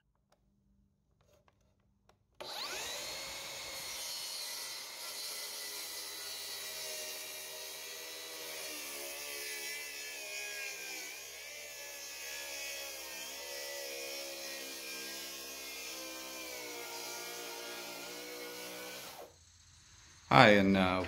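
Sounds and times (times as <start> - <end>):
electric sander motor whine: 2.4 - 5.0.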